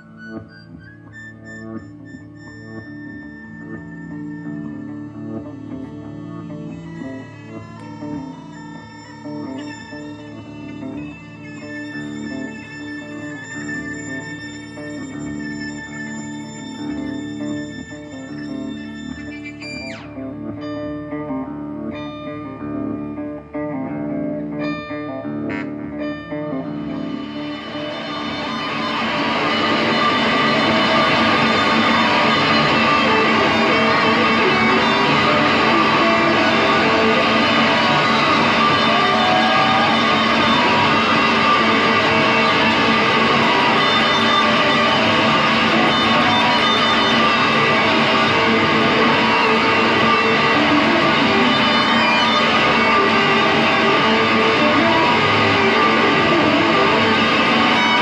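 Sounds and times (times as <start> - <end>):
droning electric guitar noise: 0.0 - 58.0.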